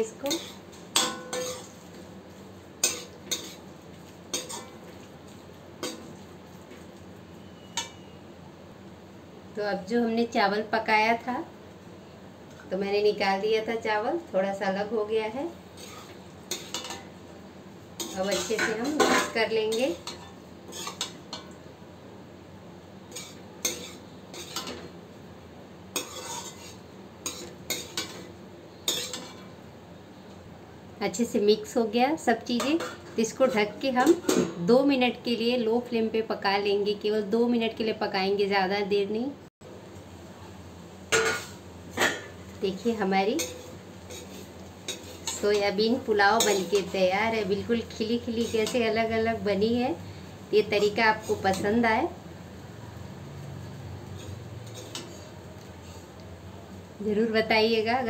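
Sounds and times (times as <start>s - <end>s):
spatula scraping a metal pan: 0.2s - 1.9s, 2.8s - 3.6s, 4.3s - 4.8s, 15.8s - 17.0s, 18.0s - 21.2s, 23.1s - 24.8s, 25.9s - 28.2s, 28.9s - 29.4s, 43.4s - 45.6s, 46.4s - 47.0s, 48.2s - 48.9s, 54.1s - 56.1s.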